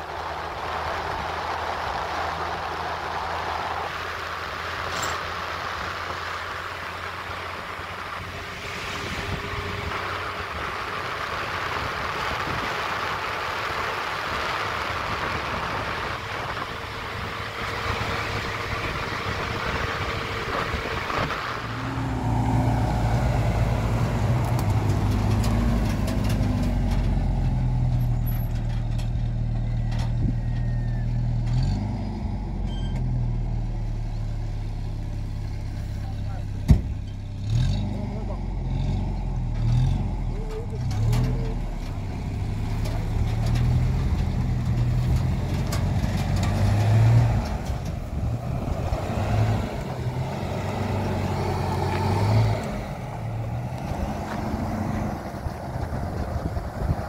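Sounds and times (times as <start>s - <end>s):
deep loud engine: 0.0s - 57.0s
road and wind noise: 0.0s - 57.0s
vehicle engine running: 0.0s - 57.0s.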